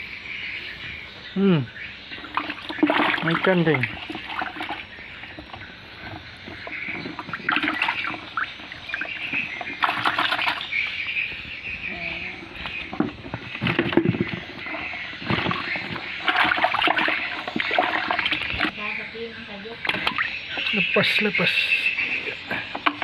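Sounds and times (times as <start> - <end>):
fish splashing in water: 2.1 - 18.8, 19.7 - 21.0.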